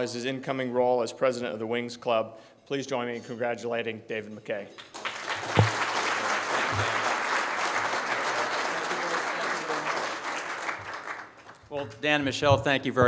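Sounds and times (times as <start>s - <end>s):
audience applauding: 4.8s - 11.8s.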